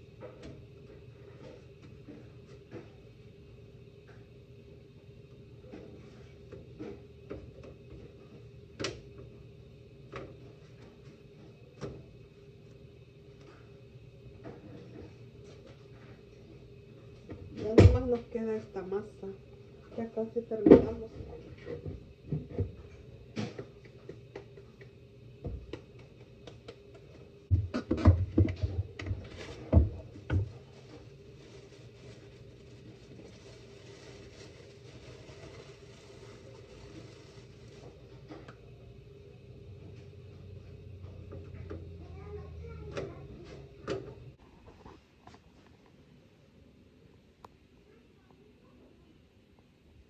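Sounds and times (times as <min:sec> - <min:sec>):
faint steady hum: 0:00.0 - 0:50.0
tortilla press knocks and thumps: 0:27.5 - 0:30.5.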